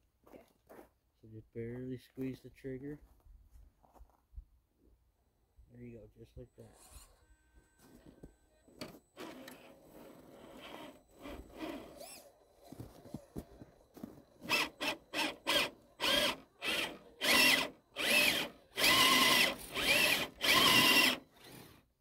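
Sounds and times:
electric motor and gears whining: 6.6 - 21.9.

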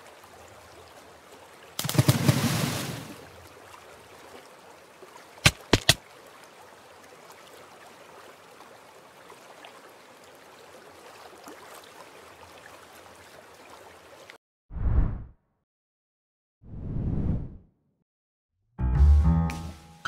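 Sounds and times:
stream of running water: 0.0 - 14.4.

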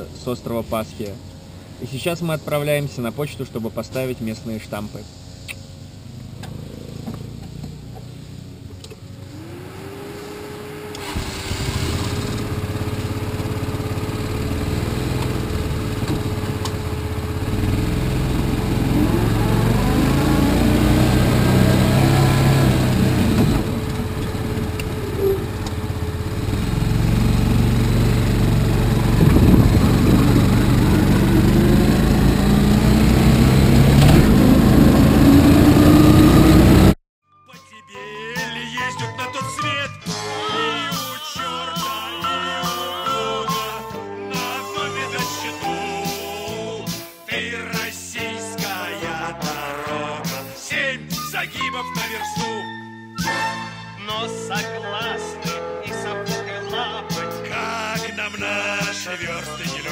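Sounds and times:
buggy engine starting and revving: 0.0 - 37.0.

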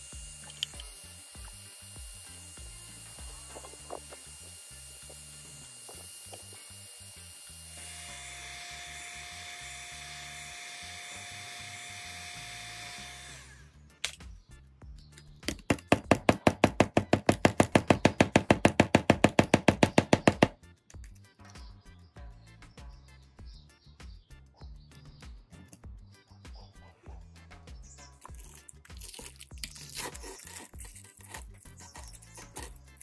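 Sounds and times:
heat gun blowing hot air: 0.0 - 13.7.

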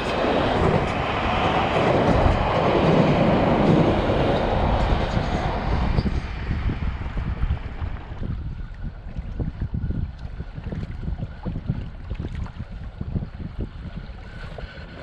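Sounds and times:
train rumbling across bridge: 0.0 - 11.5.

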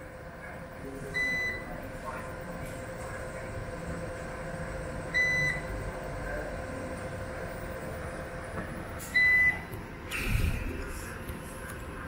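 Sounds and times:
steady hum: 0.0 - 12.0
short high alarm beeps: 1.2 - 1.7, 5.2 - 5.7, 9.1 - 9.6.

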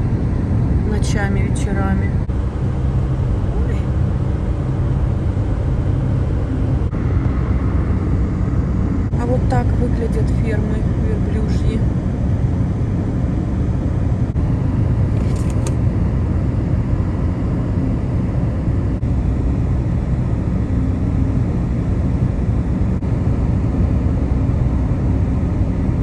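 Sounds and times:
car road rumble from cabin: 0.0 - 12.2
wind noise: 0.0 - 26.0.

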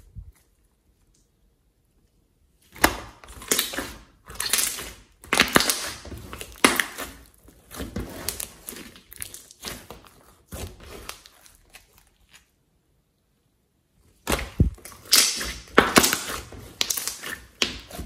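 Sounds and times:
slime crackling and popping: 2.8 - 12.5, 14.2 - 18.0.

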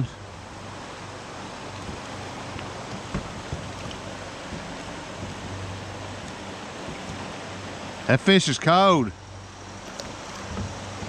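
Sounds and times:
river water flowing over rocks: 0.0 - 11.0
faint knocks: 2.6 - 7.3.

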